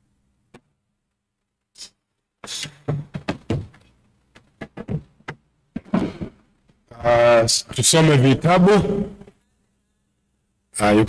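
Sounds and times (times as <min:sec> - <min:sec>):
knocks and thumps on microphone: 0:02.8 - 0:06.4.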